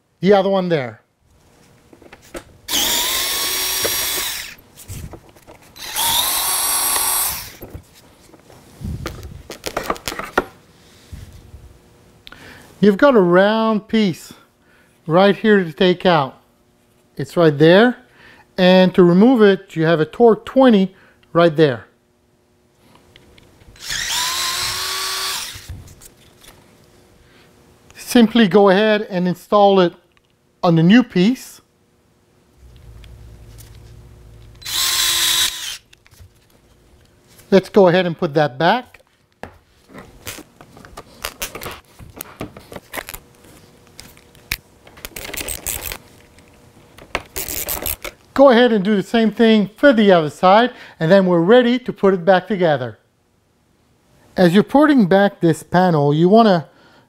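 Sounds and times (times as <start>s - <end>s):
power screwdriver whining: 2.7s - 4.6s, 5.8s - 7.6s, 23.8s - 25.7s, 34.6s - 36.0s.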